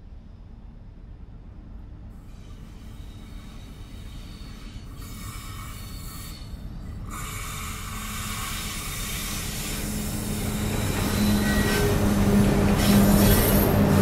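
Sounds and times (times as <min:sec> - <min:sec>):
hiss of running gear: 0:02.3 - 0:10.9.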